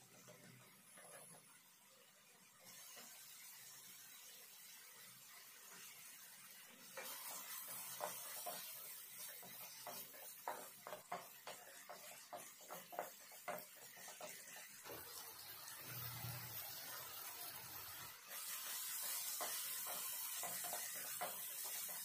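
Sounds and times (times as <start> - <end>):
tomatoes sizzling in hot oil: 0.0 - 22.0
wooden spatula scraping pan: 6.8 - 22.0.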